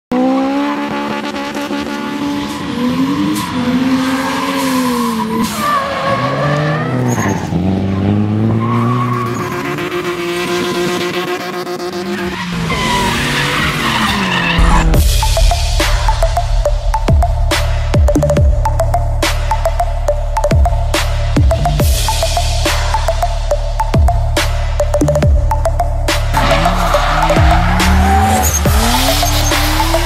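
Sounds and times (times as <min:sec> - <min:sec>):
car engine revving: 0:00.1 - 0:30.0
tyres squealing: 0:26.3 - 0:30.0.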